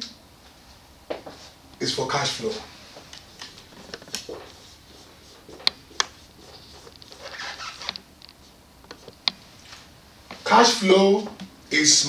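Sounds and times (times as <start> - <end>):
marker writing on whiteboard: 3.2 - 9.5.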